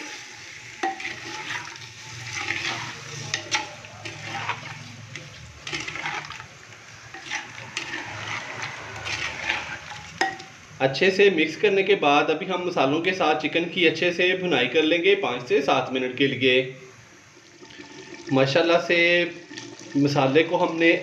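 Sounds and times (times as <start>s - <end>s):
spoon stirring wet food: 0.8s - 10.7s
spoon knocking clay pot: 10.2s - 10.5s.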